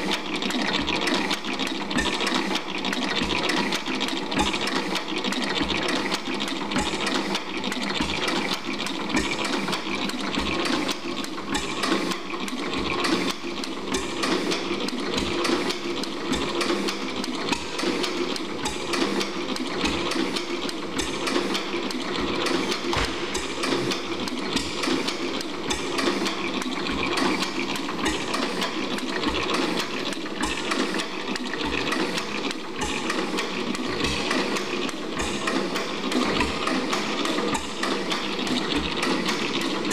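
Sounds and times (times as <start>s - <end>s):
stationary gas engine running: 0.0s - 39.9s
low engine thumps: 22.9s - 24.0s.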